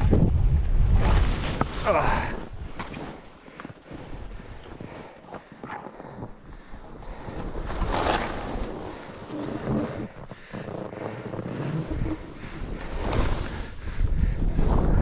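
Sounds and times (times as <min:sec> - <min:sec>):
wind rumbling on microphone: 0:00.0 - 0:02.8, 0:06.1 - 0:15.0
skis swishing through snow: 0:00.9 - 0:15.0.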